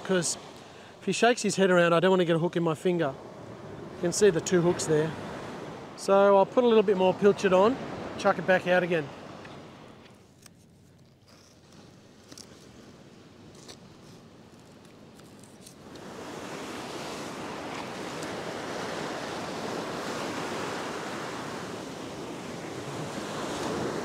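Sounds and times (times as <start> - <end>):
surf breaking on a beach: 15.8 - 24.0.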